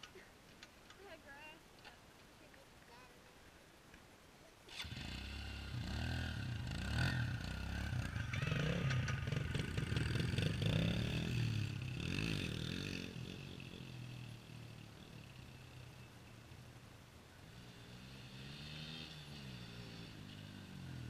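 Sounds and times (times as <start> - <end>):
dirt bike engine revving: 4.7 - 15.6, 17.4 - 21.0.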